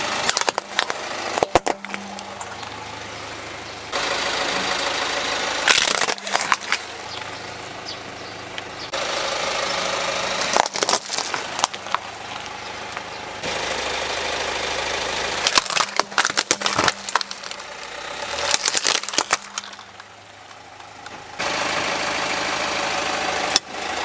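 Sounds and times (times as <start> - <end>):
plastic toys cracking under tyre: 0.0 - 2.8, 5.7 - 7.8, 10.4 - 13.1, 15.4 - 21.2
car engine idling: 0.0 - 24.0.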